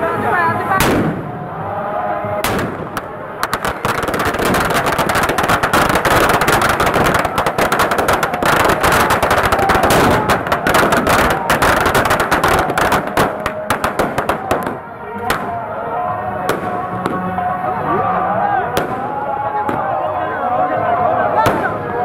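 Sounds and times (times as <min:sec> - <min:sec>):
firecrackers bursting: 0:00.6 - 0:01.6, 0:02.3 - 0:15.7, 0:16.4 - 0:17.4, 0:18.7 - 0:20.0, 0:21.4 - 0:22.0.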